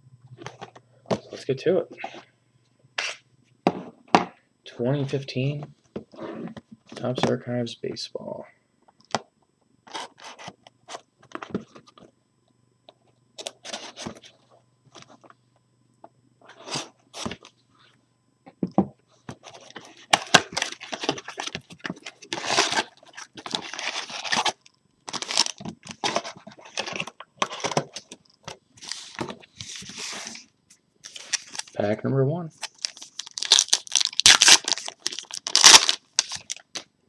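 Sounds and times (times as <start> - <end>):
plastic wrap crinkling and tearing: 20.0 - 28.1, 31.0 - 31.8, 32.6 - 36.9
knife slitting shrink wrap: 32.8 - 36.6.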